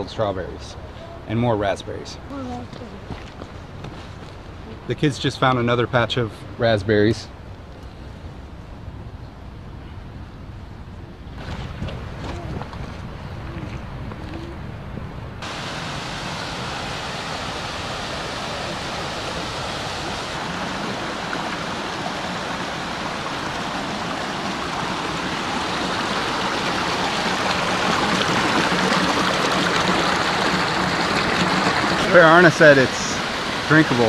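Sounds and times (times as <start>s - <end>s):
stream rushing over rocks: 15.4s - 34.0s.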